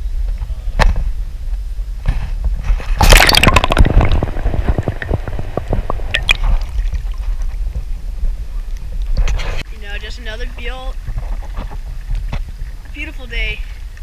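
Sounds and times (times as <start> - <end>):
steady low rumble: 0.0 - 14.0
water splashing: 2.7 - 9.2
bubbling pops and drips: 3.0 - 7.6.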